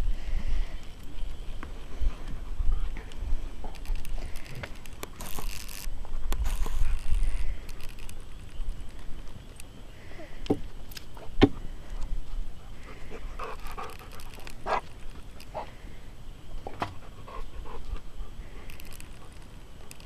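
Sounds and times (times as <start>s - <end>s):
horse breathing hard: 11.2s - 16.0s.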